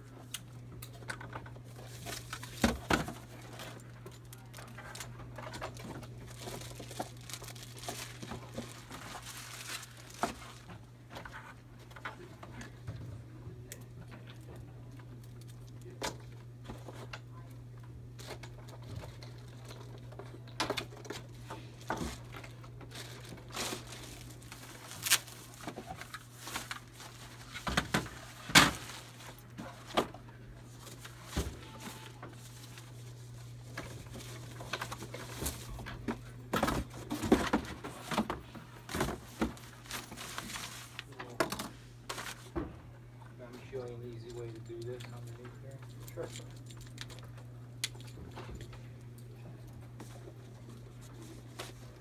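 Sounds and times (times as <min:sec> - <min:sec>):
paper and plastic bag crinkling: 0:01.2 - 0:11.6, 0:18.2 - 0:42.6.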